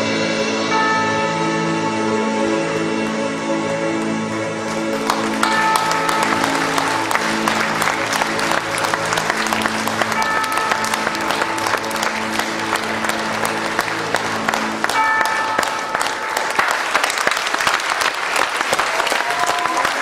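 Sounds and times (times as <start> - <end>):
audience applauding: 4.6 - 20.0.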